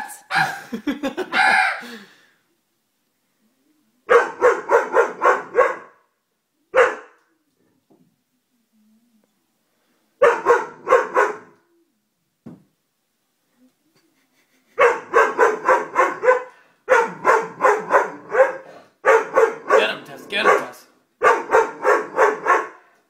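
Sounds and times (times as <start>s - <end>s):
dog barking: 0.0s - 0.6s, 1.3s - 1.8s, 4.1s - 6.0s, 6.7s - 7.2s, 10.2s - 11.6s, 14.8s - 22.9s.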